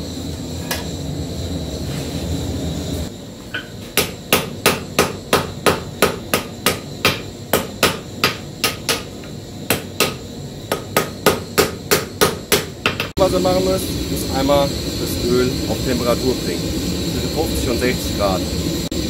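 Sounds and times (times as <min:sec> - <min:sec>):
hammer striking hot steel on anvil: 0:03.5 - 0:13.2
steady low rush: 0:13.2 - 0:19.0.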